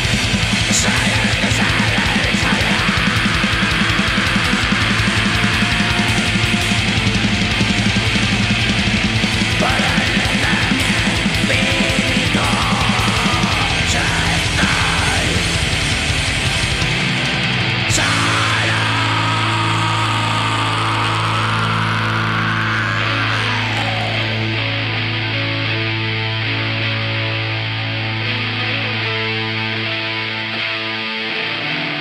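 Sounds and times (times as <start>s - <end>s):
rapid kick drum: 0.0s - 17.0s
fast drumming: 0.0s - 24.4s
distorted electric guitars: 0.0s - 32.0s.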